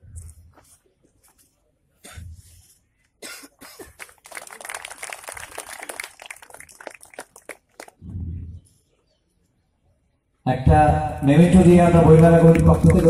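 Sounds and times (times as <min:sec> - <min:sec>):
short low cough: 0:02.0 - 0:04.1
audience applause: 0:03.9 - 0:08.0, 0:12.0 - 0:13.0.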